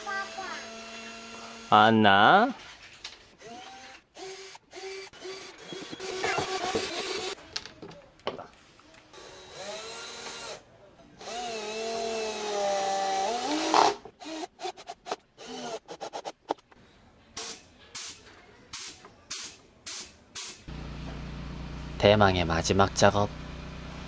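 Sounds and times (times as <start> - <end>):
cordless drill screwing into wood: 3.4 - 7.4.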